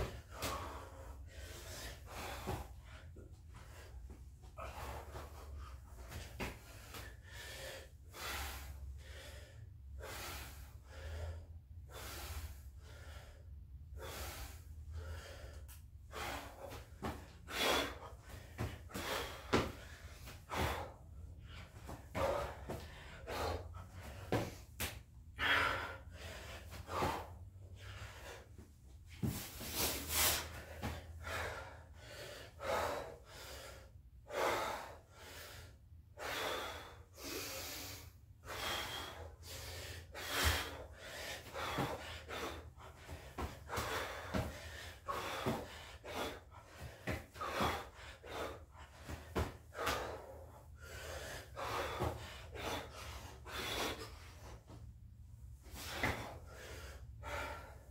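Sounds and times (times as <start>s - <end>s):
man breathing hard and gasping: 0.0s - 57.9s.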